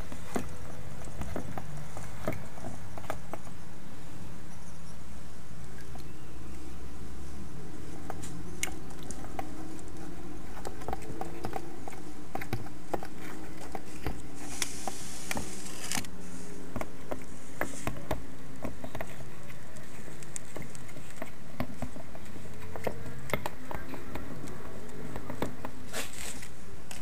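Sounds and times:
scraping rustle: 7.2s - 27.0s.

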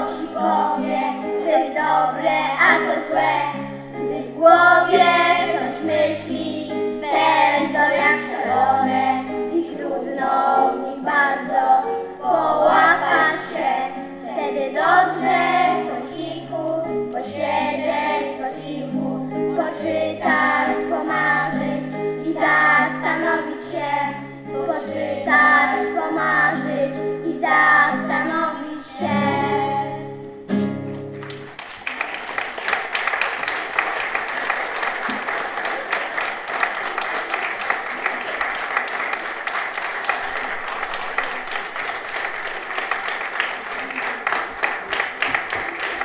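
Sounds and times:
children singing: 0.0s - 30.2s
audience applause: 31.1s - 46.0s.

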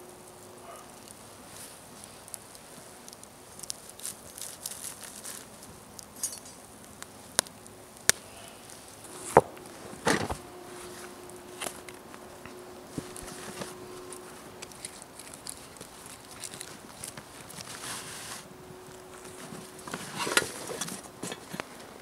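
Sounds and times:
campfire crackling: 0.0s - 22.0s
thumps and rustles: 9.1s - 11.9s.

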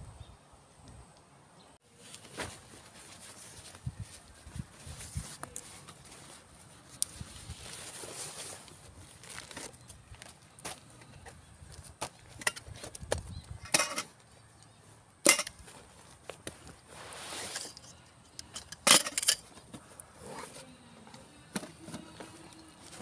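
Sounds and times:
bags rustling: 2.0s - 10.3s.

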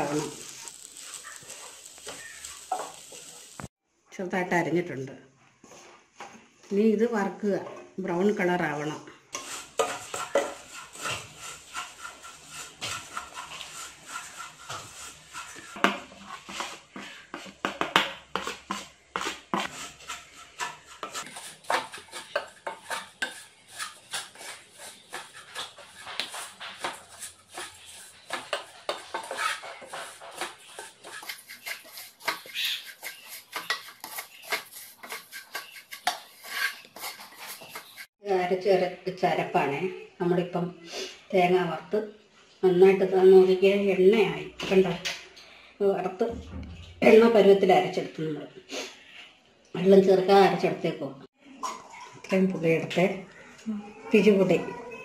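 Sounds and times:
wooden spatula scraping a pot: 0.0s - 3.7s, 7.5s - 38.2s.

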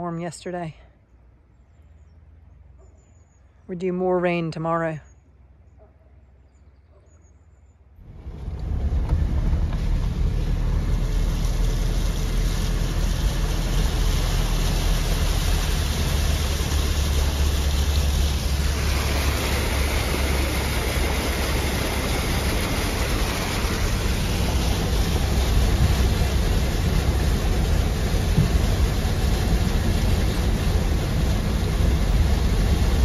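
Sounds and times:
car engine and road rumble: 0.0s - 33.0s
water sprayed by tyres: 8.0s - 33.0s.

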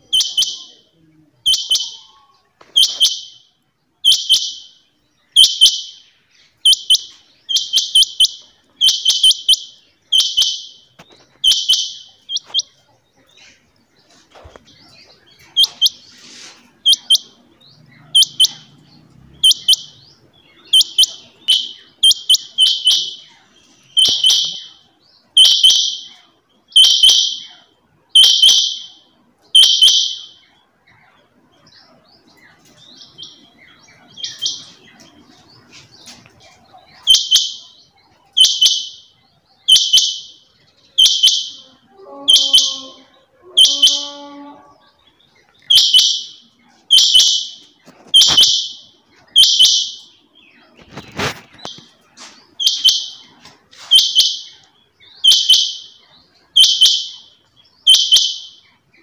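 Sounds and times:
quail calling: 1.5s - 3.4s, 6.7s - 12.8s, 14.4s - 18.8s, 19.4s - 20.0s, 20.6s - 27.6s, 41.0s - 44.8s, 45.6s - 51.9s, 52.5s - 54.6s, 55.2s - 57.3s.

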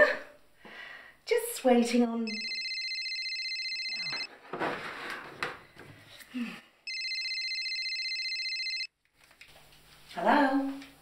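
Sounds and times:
telephone ringing electronic trill: 2.3s - 4.3s, 6.9s - 8.9s.

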